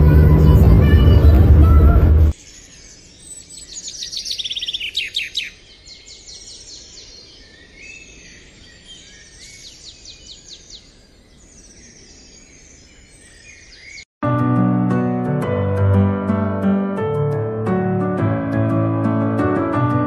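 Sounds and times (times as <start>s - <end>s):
wild birds singing and chirping: 2.3s - 14.1s.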